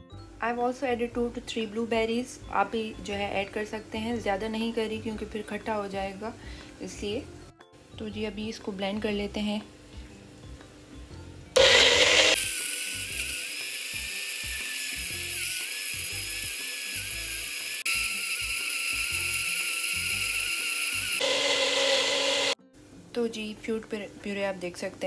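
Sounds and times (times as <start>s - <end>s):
blender whining: 11.6s - 22.6s.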